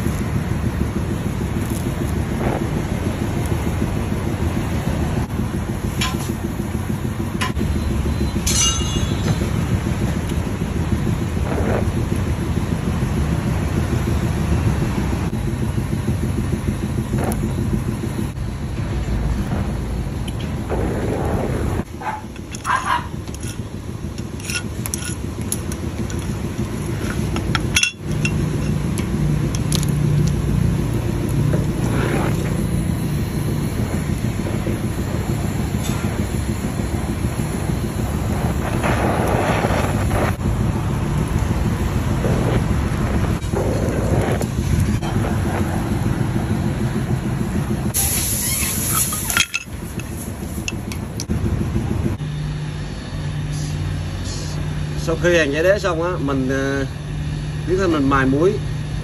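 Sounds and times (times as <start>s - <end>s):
torch flame roaring: 0.0s - 59.0s
sharp hiss: 30.6s - 46.4s, 47.9s - 50.7s.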